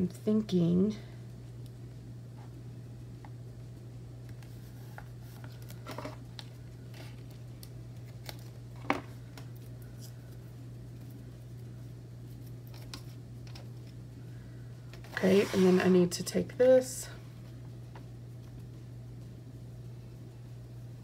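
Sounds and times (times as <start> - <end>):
steady low hum: 0.0 - 21.0
tape and paper rustling: 4.3 - 11.2.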